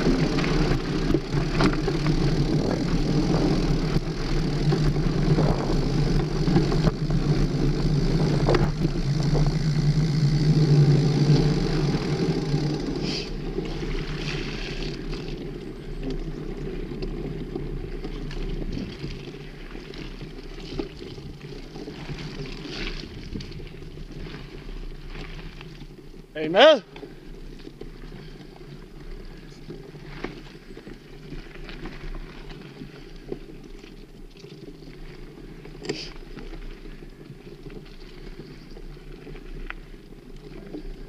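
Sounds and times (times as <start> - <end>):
bike tyres rolling on mud: 0.0 - 41.0
wind on microphone: 4.8 - 9.7.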